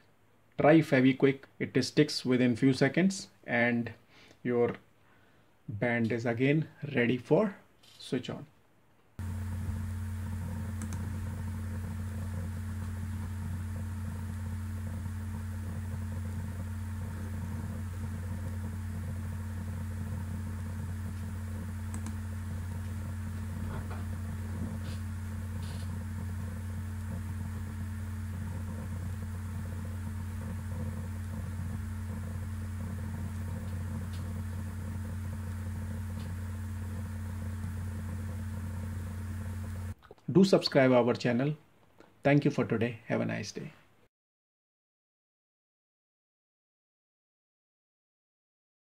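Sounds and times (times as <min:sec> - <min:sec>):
steady low hum: 0:09.2 - 0:40.0.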